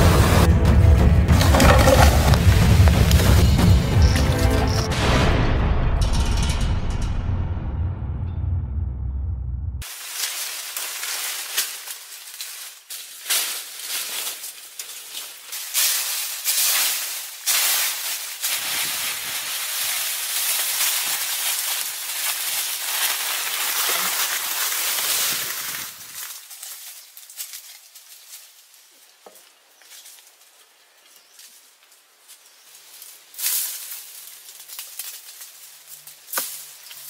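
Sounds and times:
intro music: 0:00.0 - 0:06.1
short rustles and crunches: 0:01.4 - 0:04.9, 0:09.8 - 0:37.0
dense high-pitched forest hiss: 0:09.8 - 0:37.0.

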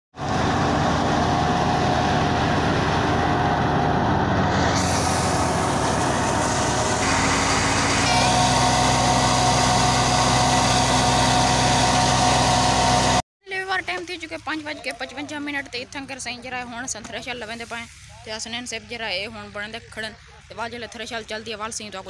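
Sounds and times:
steady machine whine: 0:00.2 - 0:13.2
thresher mechanical drone: 0:00.2 - 0:13.2.

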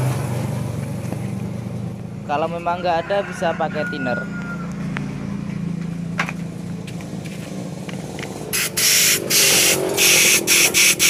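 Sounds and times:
compressed air blow gun hissing: 0:08.5 - 0:11.0.

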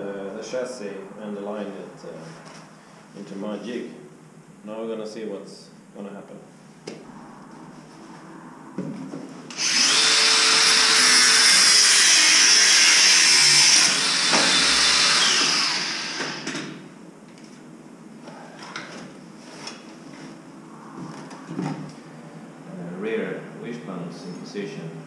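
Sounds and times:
angle grinder grinding metal: 0:09.5 - 0:16.8.

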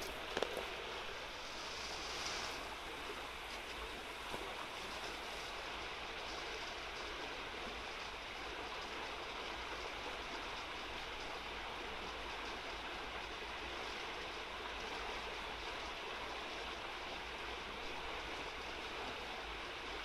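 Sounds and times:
river rushing over riffles: 0:00.0 - 0:06.7.

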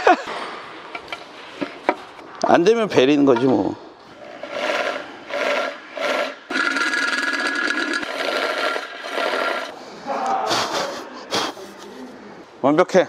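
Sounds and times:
electric drill boring into metal: 0:04.7 - 0:09.7.

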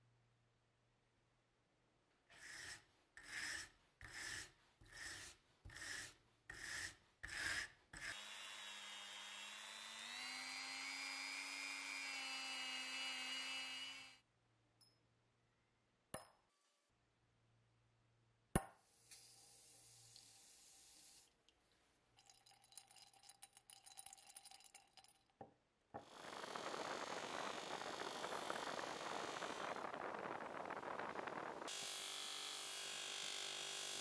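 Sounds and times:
rotary tool grinding: 0:26.0 - 0:30.4.

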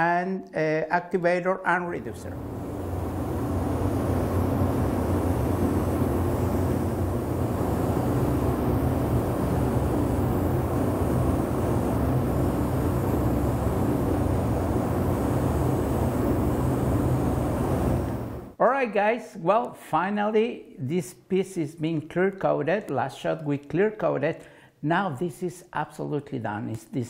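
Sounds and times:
ventilation fan running: 0:01.2 - 0:19.5.

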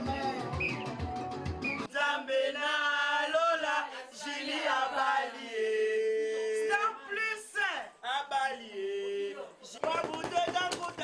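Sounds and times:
women chanting in sing-song: 0:01.8 - 0:07.1.

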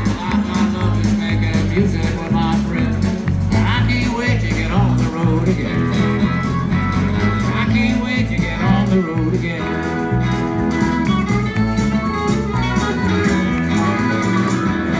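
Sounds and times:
country band playing: 0:00.0 - 0:14.9
harmonica: 0:05.4 - 0:14.9.

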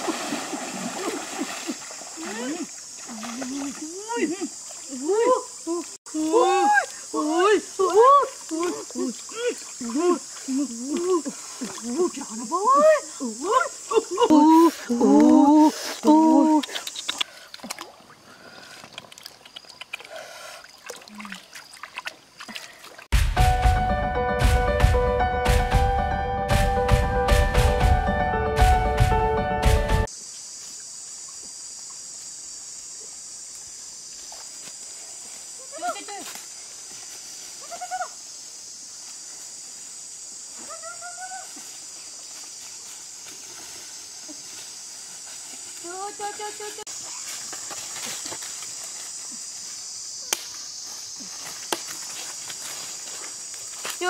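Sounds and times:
water sloshing and trickling: 0:00.0 - 0:06.0, 0:17.2 - 0:23.1
high-pitched insect chorus: 0:00.0 - 0:23.1, 0:30.0 - 0:54.0
person calling out: 0:02.2 - 0:16.8.

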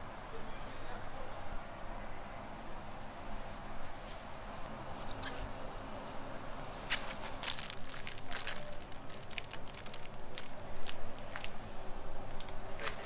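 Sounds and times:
plastic bags crinkling: 0:06.8 - 0:11.6.

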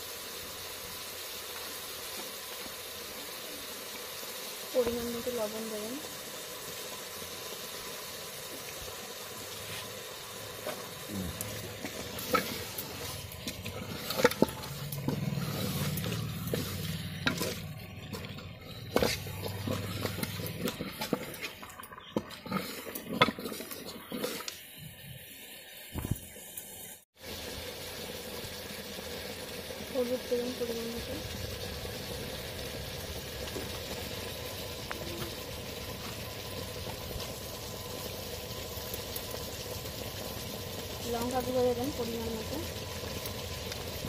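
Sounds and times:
meat sizzling: 0:00.0 - 0:44.0
wooden spatula scraping pot: 0:10.6 - 0:24.6.

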